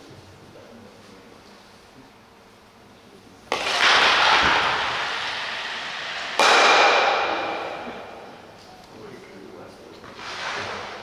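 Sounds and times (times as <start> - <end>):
ice stock hitting lane: 3.5 - 8.2, 10.2 - 11.0
loud hit: 3.5 - 8.6.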